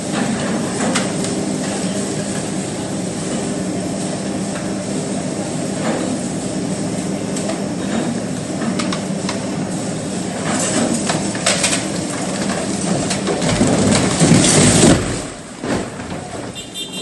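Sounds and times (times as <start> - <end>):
excavator diesel engine: 0.0 - 17.0
heavy debris crashing: 10.3 - 16.8
concrete rubble crunching: 10.6 - 16.6.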